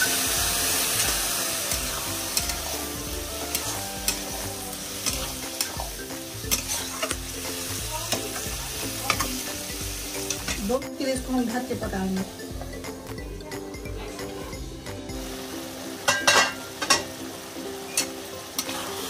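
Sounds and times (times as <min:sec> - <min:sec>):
curry sizzling in a pan: 0:00.0 - 0:19.0
ladle knocking and scraping pan: 0:16.1 - 0:17.1.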